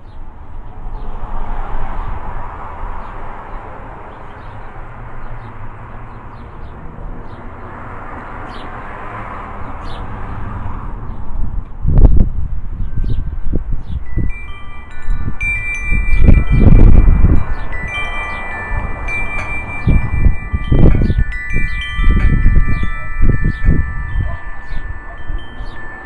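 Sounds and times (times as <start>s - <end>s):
wind rumbling on microphone: 9.6s - 26.0s
metal wind chime ringing: 14.0s - 26.0s.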